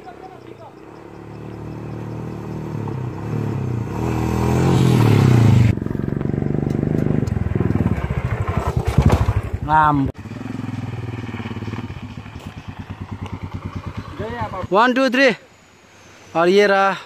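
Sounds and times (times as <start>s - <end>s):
motorcycle passing by: 0.0s - 15.1s
fast engine thump: 5.0s - 9.7s.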